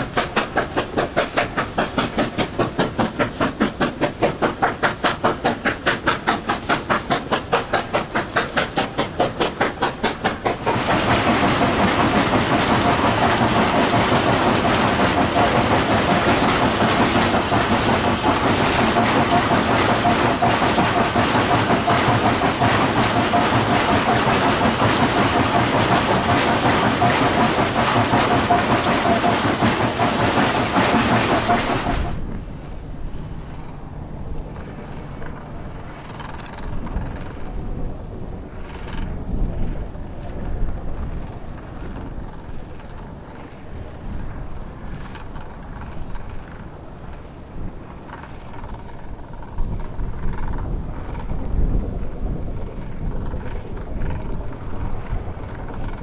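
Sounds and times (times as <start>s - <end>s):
steam hiss in locomotive cab: 0.0s - 32.8s
steam locomotive chuffing: 0.0s - 37.8s, 38.4s - 56.0s.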